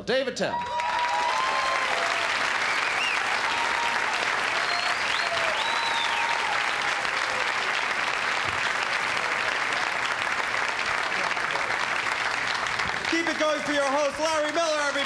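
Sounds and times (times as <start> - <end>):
cheers and whoops: 0.5 - 7.8
audience applauding: 0.6 - 15.0.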